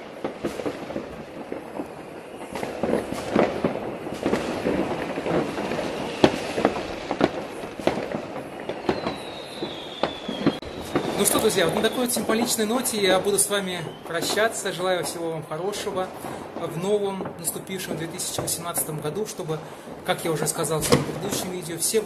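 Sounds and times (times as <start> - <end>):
high whistling firework: 0.0 - 18.6
distant fireworks bangs and crackles: 0.0 - 22.0.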